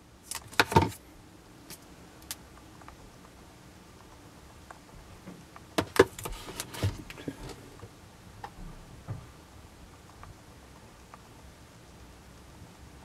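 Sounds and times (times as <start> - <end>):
tablet knocking into cardboard box: 0.5 - 1.0.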